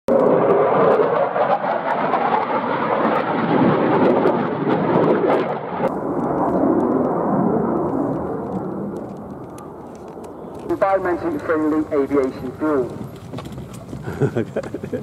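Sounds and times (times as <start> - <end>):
fighter jet rumbling past: 0.1 - 14.0.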